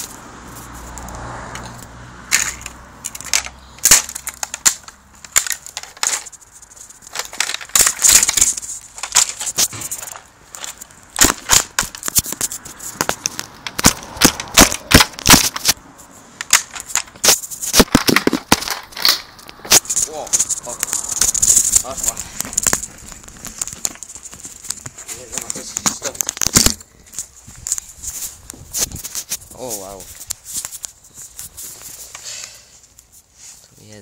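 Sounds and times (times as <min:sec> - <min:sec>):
plastic hubcap cracking: 0:02.3 - 0:15.8, 0:16.4 - 0:27.9.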